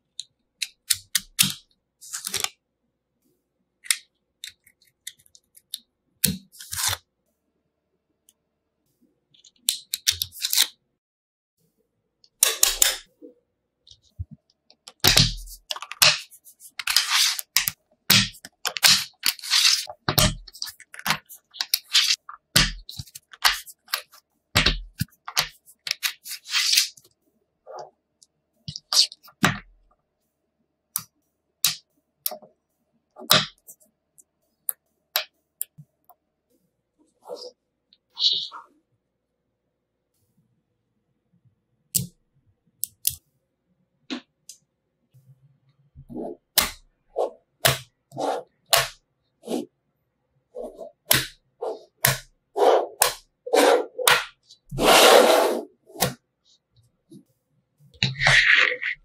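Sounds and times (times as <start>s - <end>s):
card scraping against balls: 6.5s - 7.0s, 15.0s - 27.0s, 46.1s - 49.7s, 50.6s - 56.2s, 58.0s - 59.0s.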